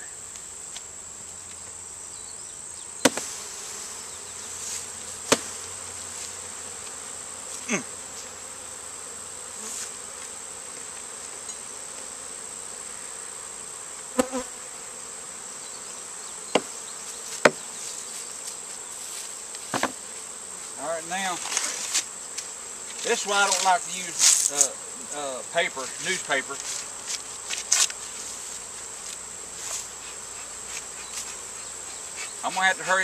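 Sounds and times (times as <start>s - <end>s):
honeybees buzzing: 0.0s - 33.0s
wooden knocks of hive boards: 3.0s - 3.3s, 5.2s - 5.6s, 16.5s - 17.7s, 19.7s - 20.0s.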